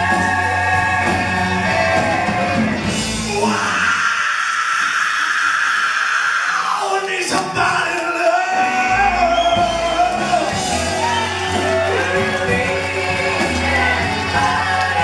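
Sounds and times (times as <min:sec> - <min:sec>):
deep bass line: 0:00.0 - 0:03.5, 0:08.9 - 0:15.0
live rock band: 0:00.0 - 0:04.2, 0:06.9 - 0:15.0
shouted wailing lead vocal: 0:00.0 - 0:15.0.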